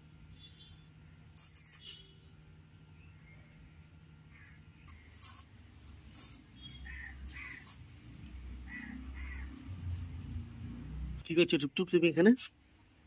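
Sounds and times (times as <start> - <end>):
crow cawing: 4.3 - 4.6, 6.8 - 7.8, 8.6 - 9.6.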